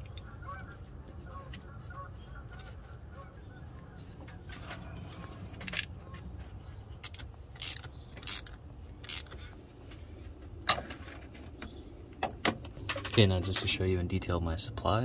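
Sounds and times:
tools clicking on metal: 7.0s - 9.4s.

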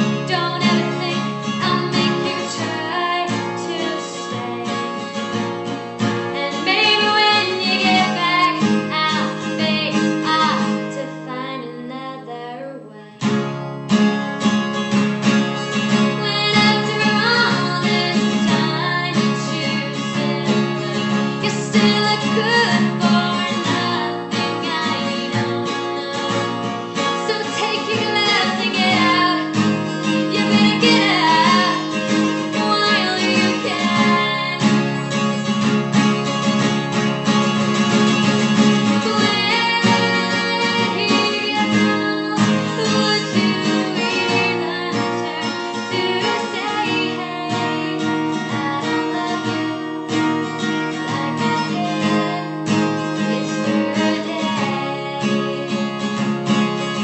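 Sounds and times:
person singing: 0.0s - 5.2s, 6.3s - 13.3s, 15.6s - 35.5s, 38.8s - 56.0s
acoustic guitar: 0.0s - 57.0s.

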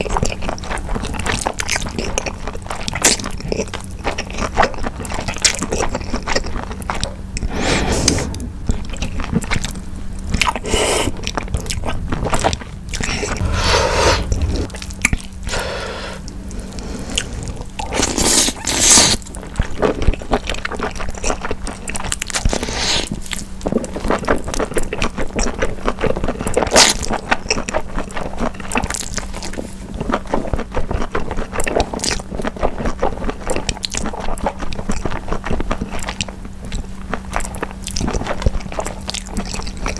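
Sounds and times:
wet chewing and smacking: 0.0s - 7.5s, 8.7s - 13.4s, 17.1s - 39.9s
noodles slurped: 15.5s - 19.2s.

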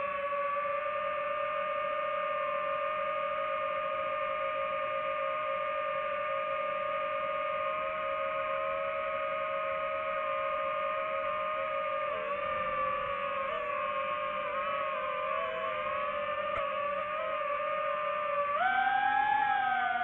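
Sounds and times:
drone propellers whining: 8.4s - 20.0s.

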